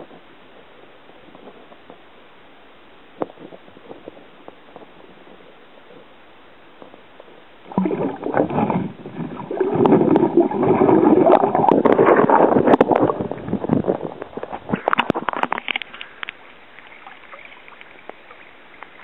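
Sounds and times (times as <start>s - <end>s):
water splashing and churning: 7.6s - 19.0s.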